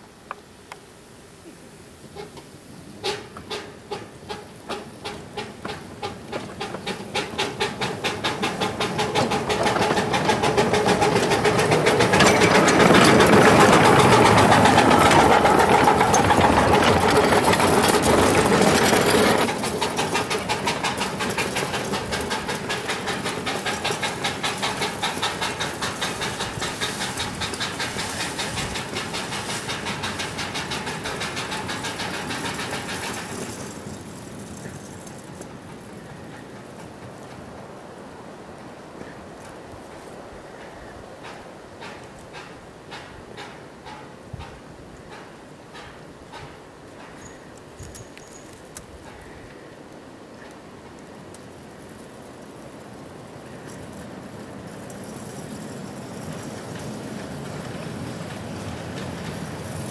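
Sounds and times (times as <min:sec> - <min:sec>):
miniature steam locomotive chuffing: 0:03.0 - 0:37.5, 0:40.4 - 0:59.9.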